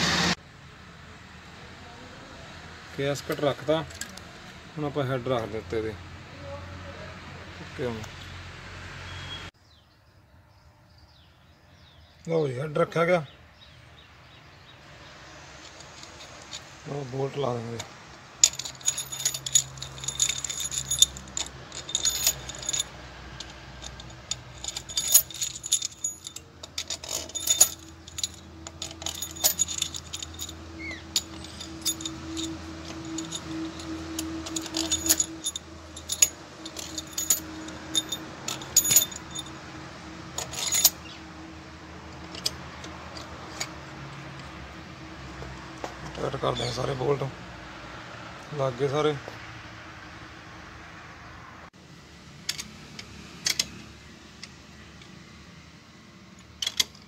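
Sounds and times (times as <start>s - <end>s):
steel bolts clinking: 15.6s - 16.8s, 17.8s - 39.7s, 40.3s - 41.2s, 42.1s - 44.6s, 52.4s - 53.8s, 56.4s - 57.0s.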